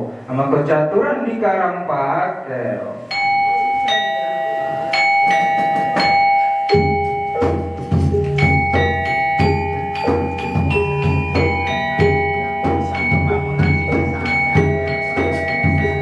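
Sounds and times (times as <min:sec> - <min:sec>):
metallophones ringing notes: 0:02.9 - 0:16.0
low drum beats: 0:05.3 - 0:16.0.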